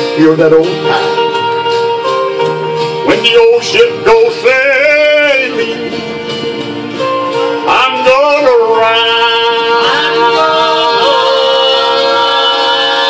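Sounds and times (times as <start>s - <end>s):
country gospel guitar accompaniment: 0.0s - 13.0s
man singing: 3.0s - 6.0s, 7.6s - 13.0s.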